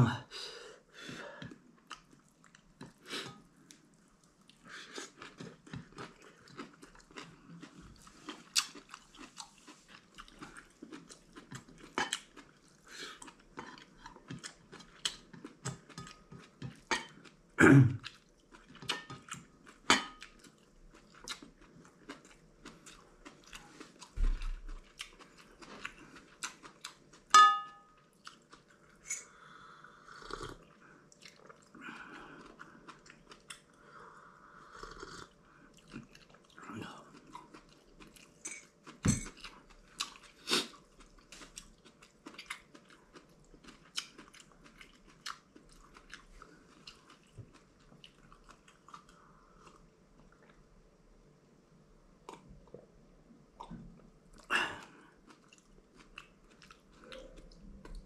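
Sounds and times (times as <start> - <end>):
man chewing: 1.3 - 17.4, 18.0 - 27.3, 28.0 - 50.6, 53.6 - 58.0
crockery clink: 27.4 - 27.9.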